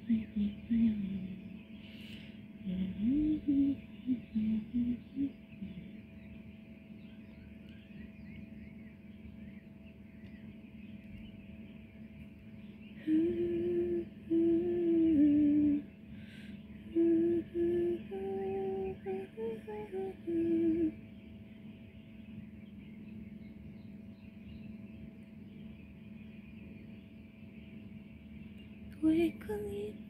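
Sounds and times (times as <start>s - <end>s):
person humming: 0.0s - 1.5s, 2.6s - 6.0s, 13.0s - 15.8s, 16.9s - 21.0s.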